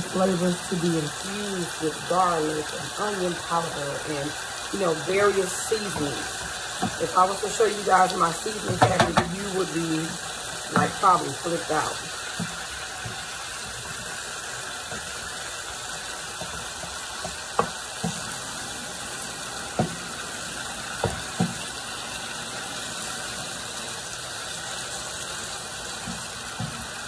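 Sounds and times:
chicken sizzling in a pan: 0.0 - 27.0
wooden spoon knocking on pan: 5.9 - 7.0, 8.6 - 9.4, 10.7 - 11.0, 11.8 - 14.2, 14.8 - 15.3, 16.3 - 18.4, 19.7 - 20.1, 21.0 - 21.6, 26.0 - 27.0.

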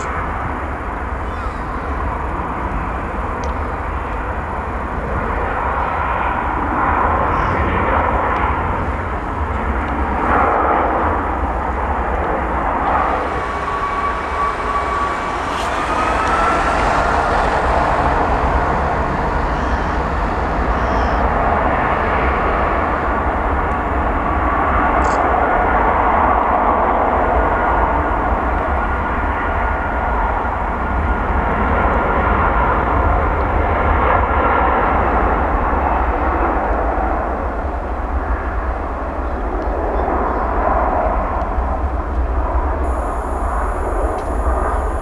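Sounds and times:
rising engine whine: 0.0 - 33.2, 37.4 - 45.0
jet engines running: 0.0 - 45.0.

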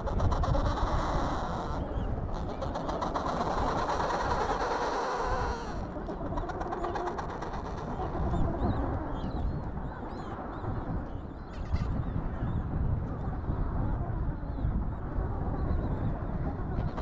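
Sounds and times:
wind rumbling on microphone: 0.0 - 17.0
penguin colony calls: 0.1 - 8.6.

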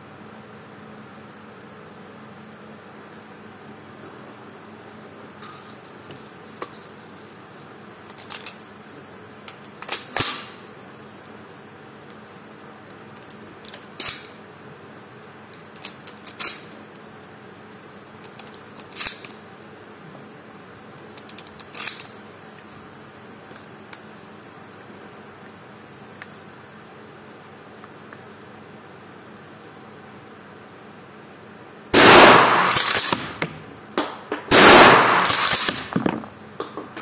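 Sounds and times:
shotgun metallic clicks: 34.8 - 35.9.

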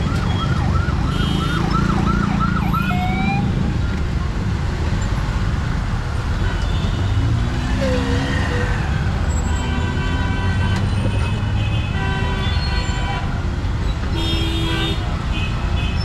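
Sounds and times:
traffic rumble: 0.0 - 16.0
vehicle horns honking: 1.1 - 1.6, 9.4 - 13.3, 14.1 - 16.0.

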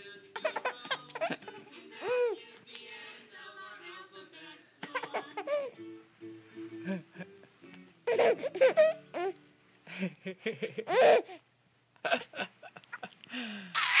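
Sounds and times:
baby laughing: 0.4 - 2.4, 4.8 - 5.8, 8.0 - 9.4, 10.5 - 11.4, 13.8 - 14.0.

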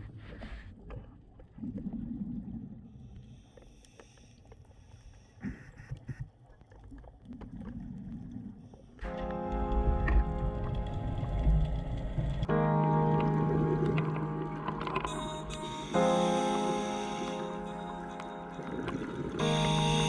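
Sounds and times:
regulator bubbles underwater: 0.8 - 3.6, 5.5 - 15.2
background music: 9.0 - 20.0.

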